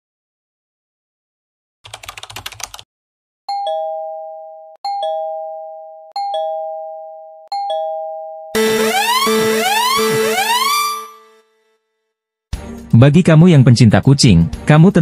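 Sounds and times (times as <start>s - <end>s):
keyboard typing clicks: 1.9s - 2.8s
two-tone doorbell chime: 3.5s - 8.6s.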